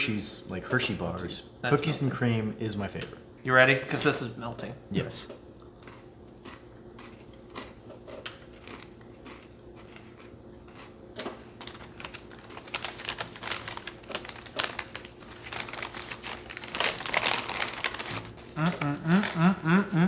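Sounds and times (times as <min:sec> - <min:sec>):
pretzels being chewed: 0:05.6 - 0:19.6
plastic snack bag crinkling: 0:11.6 - 0:19.6.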